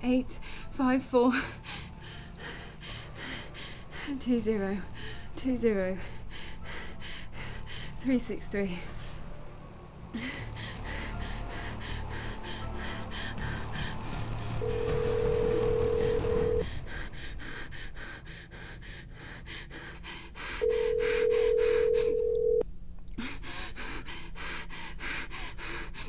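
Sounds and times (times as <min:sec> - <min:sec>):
telephone ringback tone: 0:14.6 - 0:16.6, 0:20.7 - 0:22.6.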